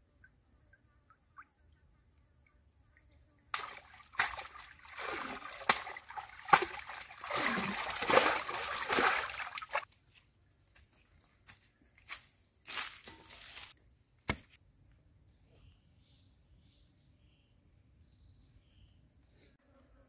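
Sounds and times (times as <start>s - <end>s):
water splashing and sloshing: 3.5s - 9.9s.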